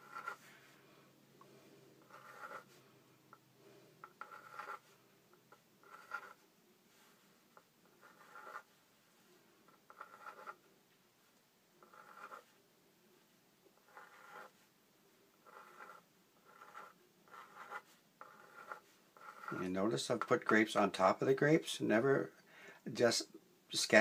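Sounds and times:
pencil sketching on paper: 0.0 - 0.4, 2.0 - 2.8, 4.0 - 4.9, 5.8 - 6.4, 7.8 - 8.7, 9.7 - 10.6, 11.8 - 12.5, 13.8 - 14.6, 15.4 - 20.5.

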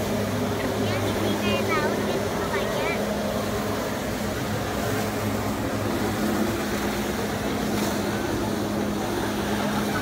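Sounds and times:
watercraft engine droning: 0.0 - 10.0.

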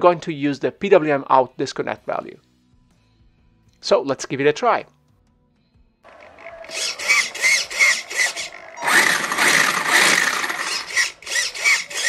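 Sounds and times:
servos whirring: 6.2 - 12.0.

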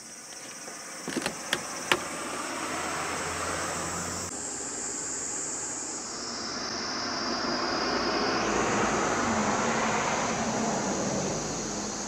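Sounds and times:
high-pitched hiss: 0.0 - 8.9.

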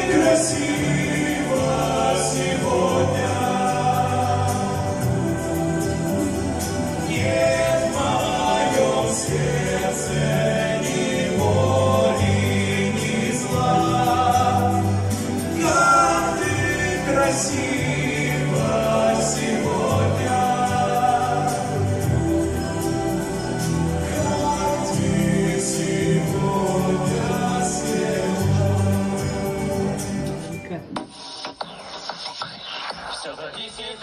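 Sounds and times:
mixed choir singing: 0.0 - 30.8.

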